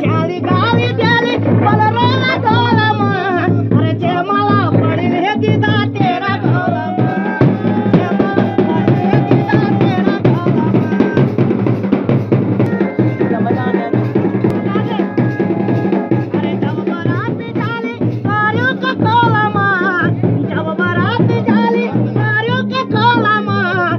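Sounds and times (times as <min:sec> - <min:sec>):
person singing: 0:00.0 - 0:11.8, 0:12.5 - 0:23.9
drums playing fast rhythm: 0:00.0 - 0:23.9
band held melody notes: 0:07.0 - 0:16.9.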